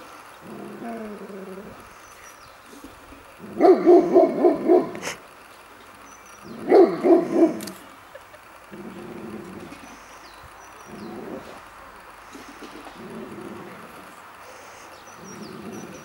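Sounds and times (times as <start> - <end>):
dog barking: 3.5 - 5.0, 6.5 - 7.7.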